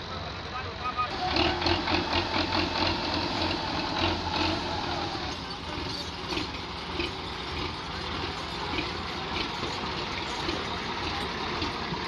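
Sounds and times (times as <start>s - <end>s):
tractor diesel engines running: 0.0s - 12.0s.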